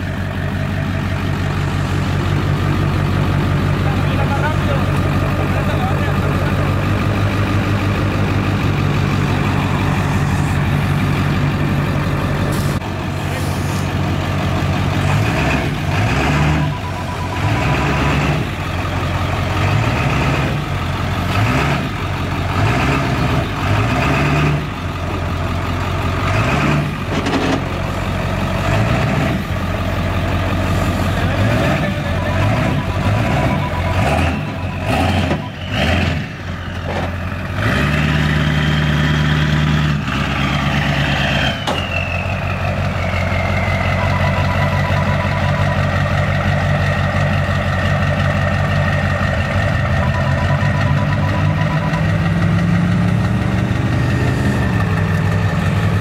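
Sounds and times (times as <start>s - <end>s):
pickup truck engine revving: 0.0s - 56.0s
steady beeping: 14.2s - 21.1s, 29.6s - 37.4s, 41.8s - 53.4s
falling whistle: 41.4s - 44.2s.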